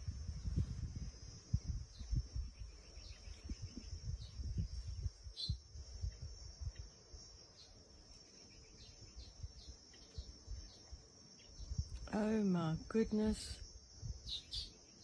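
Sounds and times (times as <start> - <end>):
insect buzz: 0.0 - 15.0
bird chirps: 1.9 - 5.6, 6.8 - 11.8, 14.2 - 15.0.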